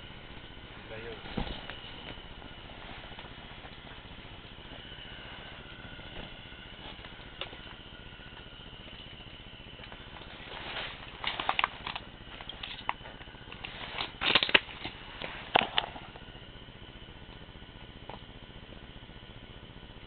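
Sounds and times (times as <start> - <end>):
faint high hum: 0.0 - 20.0.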